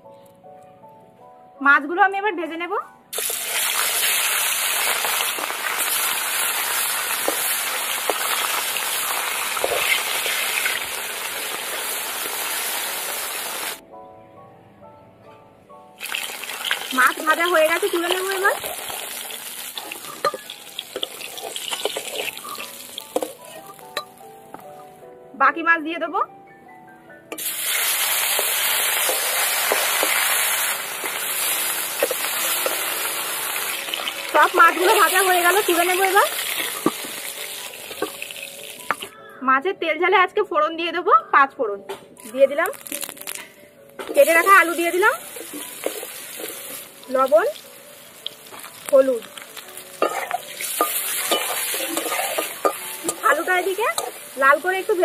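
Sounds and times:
fish sizzling in hot oil: 3.1s - 13.8s, 16.0s - 24.3s, 27.3s - 39.1s, 42.7s - 55.0s
steel spatula clicking on pan: 50.0s - 54.2s.

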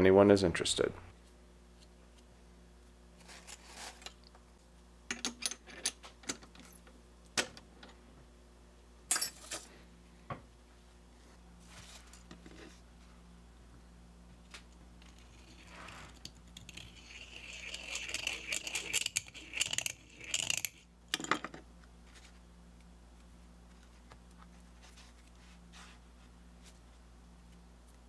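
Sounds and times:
blade scraping metal edge: 15.1s - 20.8s.

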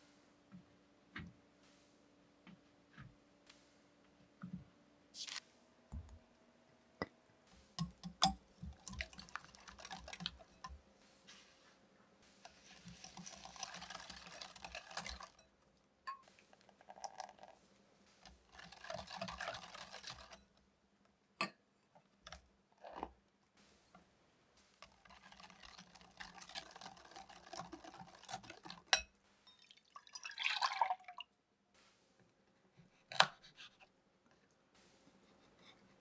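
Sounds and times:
whisk beating in a glass bowl: 7.7s - 10.8s, 12.4s - 15.4s, 18.2s - 20.5s, 24.8s - 29.6s.

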